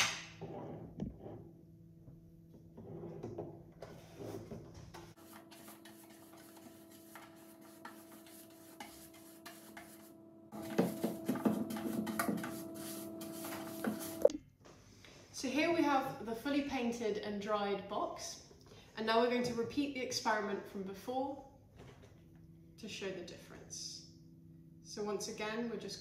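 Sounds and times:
paintbrush scraping cardboard: 0:05.1 - 0:14.3
steady low hum: 0:05.1 - 0:14.6.

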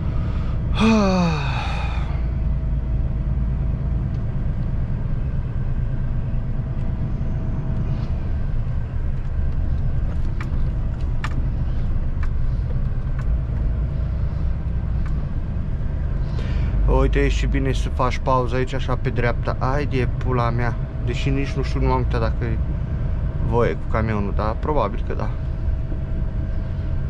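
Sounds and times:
lorry engine and road rumble: 0:00.0 - 0:27.0
light clicks and rattles: 0:09.1 - 0:15.3.

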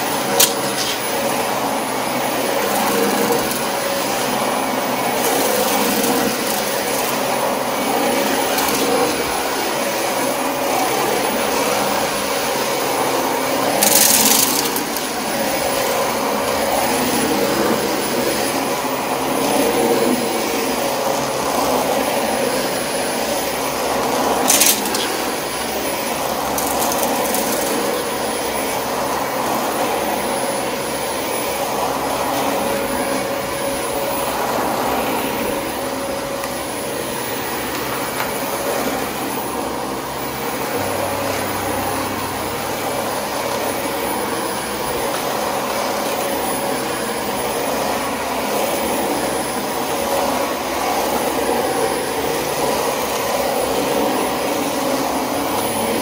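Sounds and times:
vacuum cleaner running: 0:00.0 - 0:56.0.

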